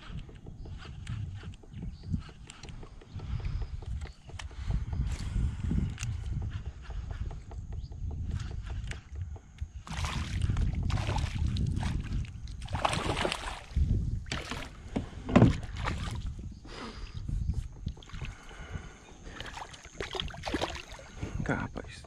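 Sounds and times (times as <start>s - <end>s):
steady low rumble: 0.0s - 22.0s
fish splashing at water surface: 12.6s - 14.8s, 19.4s - 21.1s.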